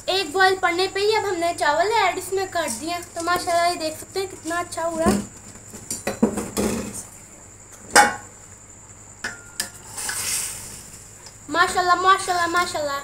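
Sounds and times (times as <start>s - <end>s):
short hiss: 9.8s - 11.2s.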